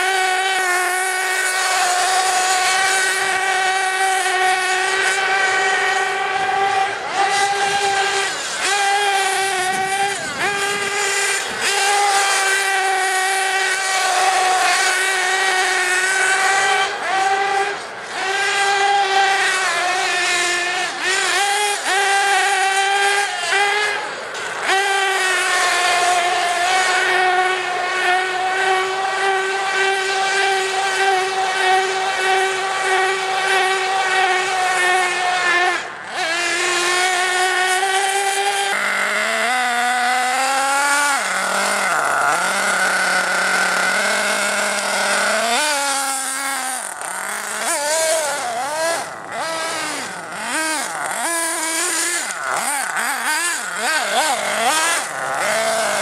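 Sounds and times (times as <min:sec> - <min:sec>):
model engine whining at high revs: 0:00.0 - 0:56.0.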